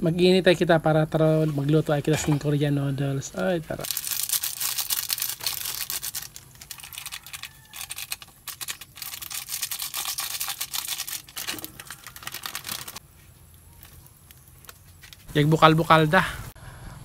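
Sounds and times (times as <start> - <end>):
crackling and clicking of heating water: 4.0 - 15.3.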